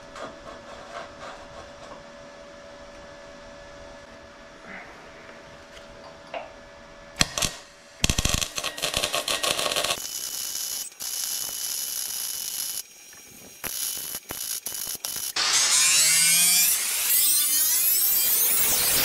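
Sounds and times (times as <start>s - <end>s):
welding arc crackling: 7.2s - 19.0s.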